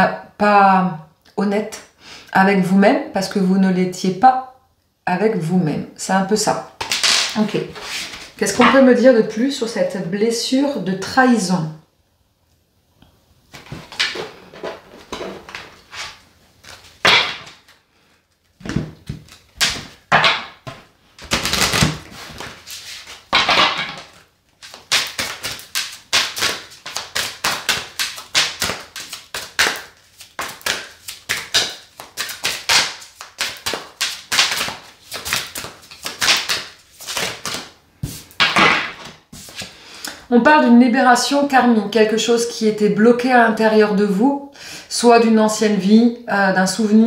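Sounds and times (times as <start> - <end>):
cards being shuffled: 6.8 - 8.8, 18.6 - 39.8.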